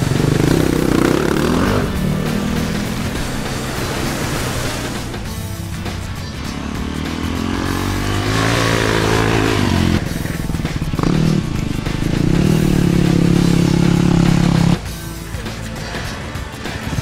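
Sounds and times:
motorcycle engine accelerating: 0.0 - 15.1
music: 0.0 - 17.0.

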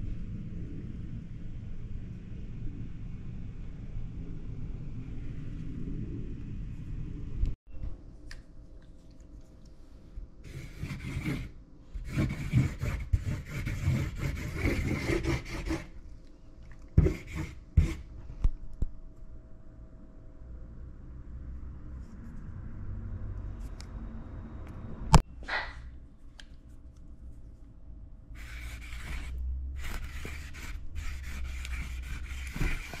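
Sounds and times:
low rumble: 0.0 - 7.6
marker scraping across tabletop: 10.5 - 15.9, 17.0 - 18.0, 28.4 - 33.0.

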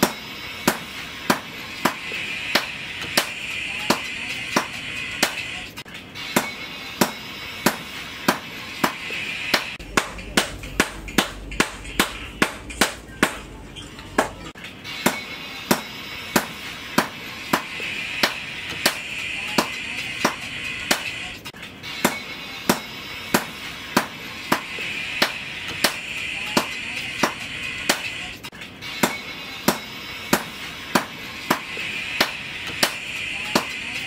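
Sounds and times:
percussive beat: 0.0 - 5.5, 6.4 - 13.5, 14.2 - 21.1, 29.0 - 33.8.

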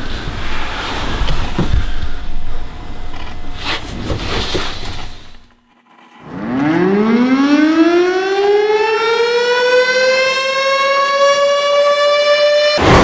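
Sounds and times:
siren winding up to a wail: 5.9 - 12.8
sudden loud burst of noise: 12.8 - 13.0.

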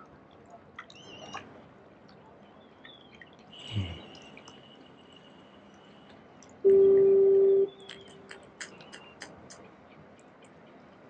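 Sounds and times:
horn steady tone: 6.7 - 7.8.

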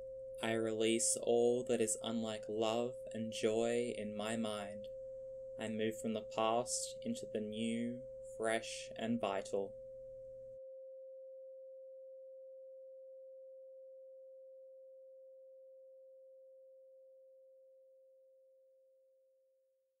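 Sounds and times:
steady pure tone: 0.0 - 15.9.

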